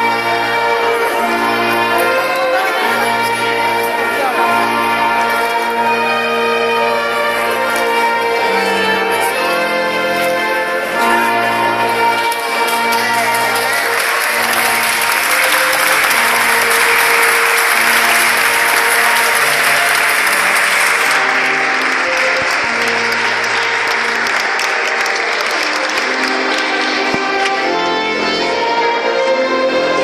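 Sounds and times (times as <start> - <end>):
music: 0.0 - 30.0
people applauding: 11.9 - 27.8.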